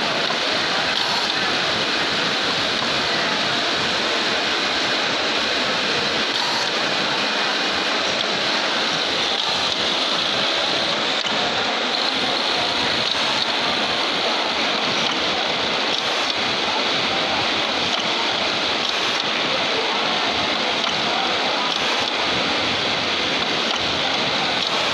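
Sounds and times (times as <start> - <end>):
hemming machine working: 6.2 - 24.9.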